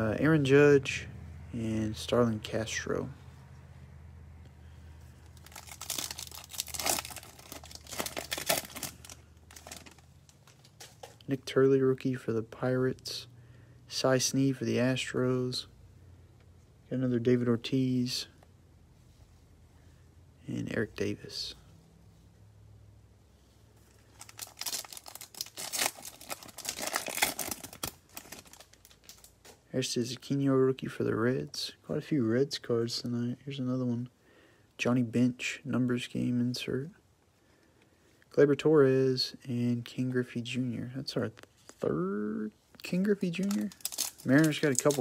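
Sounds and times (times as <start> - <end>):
foil wrapper crinkling and tearing: 5.4 - 10.8, 24.0 - 29.4, 43.2 - 45.0.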